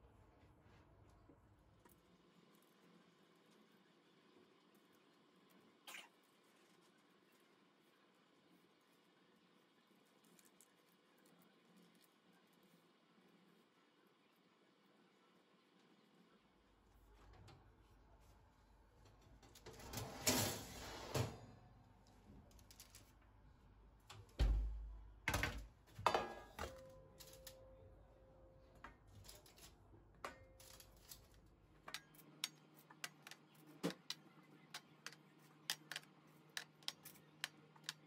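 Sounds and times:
metal baking tray sliding: 19.6s - 21.6s
cookies tapping into a dish: 31.9s - 38.0s.

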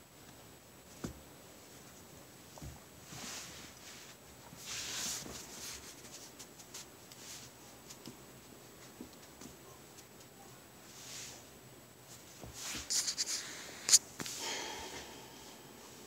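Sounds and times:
puppies scuffling on a mat: 2.4s - 10.4s.

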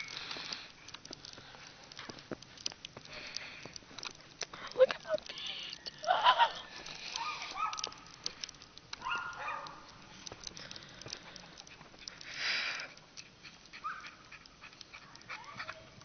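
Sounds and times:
dogs barking and yipping: 5.6s - 8.2s, 8.9s - 10.7s, 13.3s - 16.0s.

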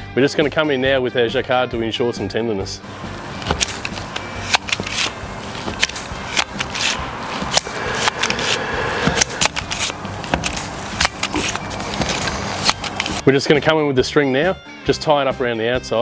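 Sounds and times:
meat tenderiser blades clicking: 3.1s - 13.2s.

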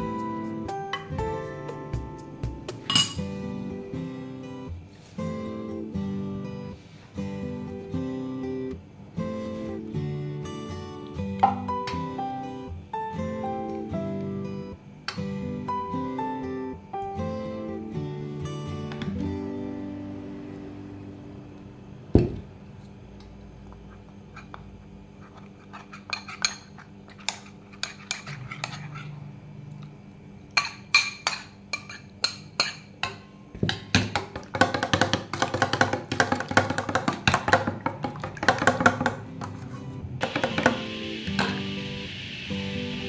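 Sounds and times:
soft acoustic guitar music: 0.0s - 21.6s, 38.9s - 43.0s
metal spoon clinking steel bowl: 2.9s - 3.2s.

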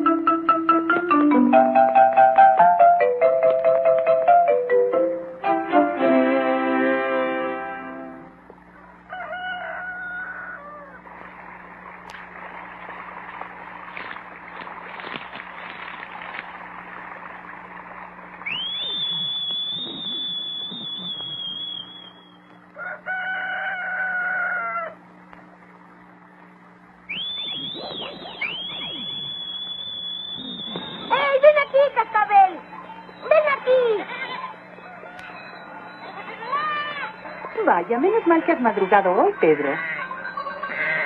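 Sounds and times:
fowl clucking: 8.7s - 11.1s, 27.1s - 29.4s, 32.7s - 41.0s
rooster crowing: 8.7s - 11.1s, 22.0s - 25.1s, 34.4s - 37.8s
quick rising whistles: 18.4s - 22.5s, 27.1s - 31.8s
long high whistle: 18.5s - 22.6s, 27.1s - 31.8s.

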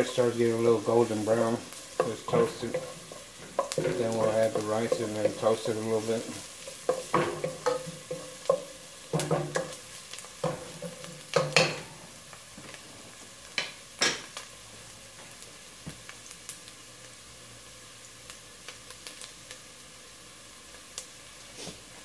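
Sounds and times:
garlic and onion sizzling in oil: 0.0s - 22.0s
utensil scraping and knocking pot: 1.4s - 9.8s.

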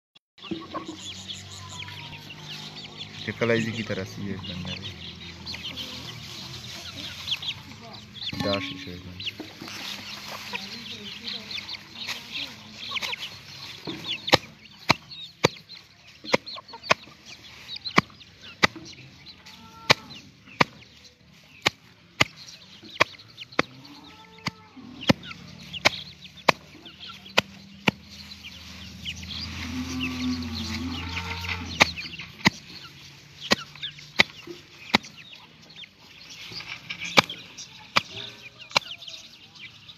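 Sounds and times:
hens clucking: 0.4s - 39.9s
small birds chirping: 0.4s - 39.9s.

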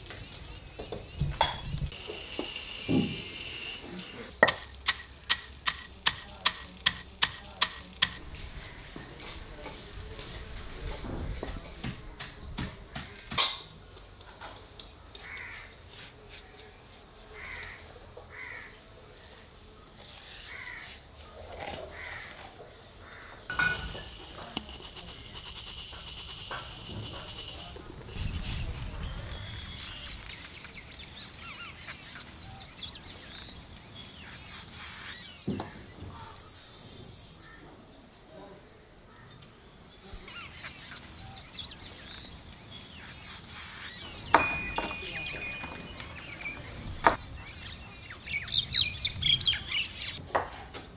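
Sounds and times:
birds chirping: 0.0s - 50.9s
high hiss: 1.3s - 4.3s, 23.5s - 30.6s, 36.1s - 38.3s
wooden pestle knocking in mortar: 4.4s - 8.2s
crow cawing: 15.2s - 15.7s, 17.4s - 18.7s, 20.5s - 21.0s.

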